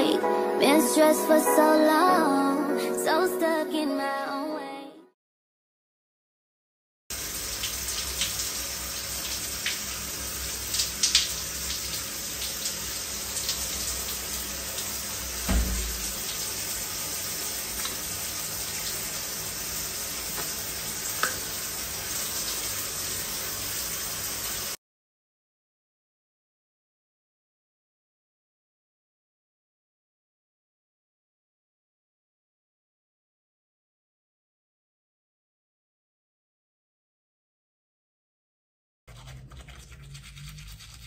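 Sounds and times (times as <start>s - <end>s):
shower water spraying: 7.1s - 24.8s
dull thump: 15.5s - 16.2s
light knocks: 15.5s - 16.2s.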